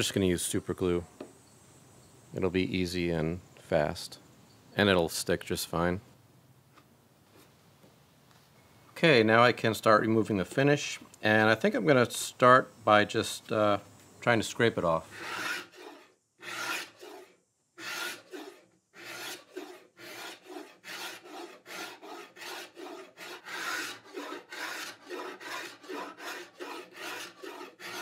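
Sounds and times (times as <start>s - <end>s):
hand scraper scraping wood: 15.1s - 28.0s.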